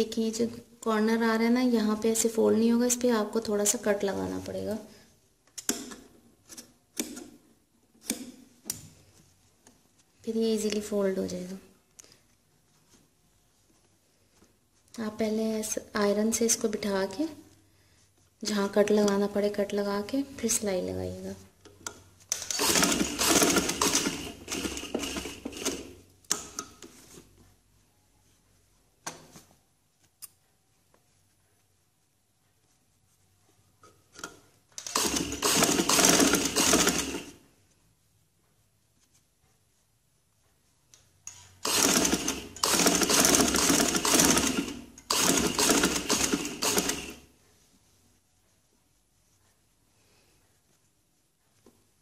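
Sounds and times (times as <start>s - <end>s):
fabric rustling: 8.4s - 21.5s, 23.0s - 35.4s, 47.0s - 52.0s
sewing machine clattering: 22.4s - 26.8s, 34.8s - 37.4s, 41.6s - 47.2s.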